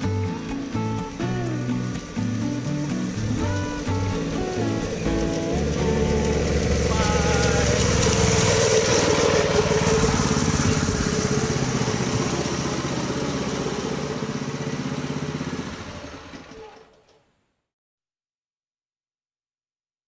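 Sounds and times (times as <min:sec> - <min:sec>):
rail cart engine passing by: 0:00.2 - 0:16.9.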